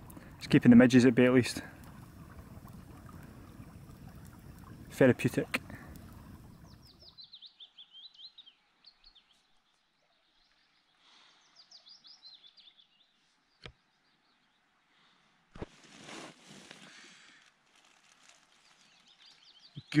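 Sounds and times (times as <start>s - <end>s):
songbird chirping: 5.9s - 15.3s, 18.1s - 20.0s.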